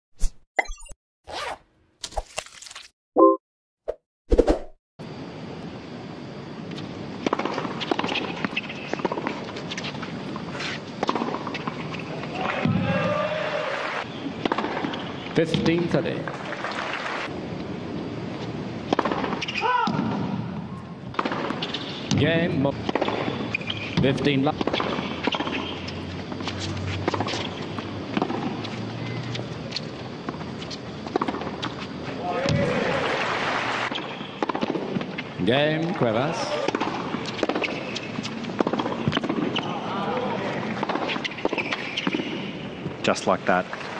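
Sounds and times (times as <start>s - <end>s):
stadium ambience hiss: 5.1s - 43.9s
tennis ball bounces: 21.1s - 29.6s, 30.2s - 31.9s, 33.9s - 35.2s, 36.5s - 40.1s.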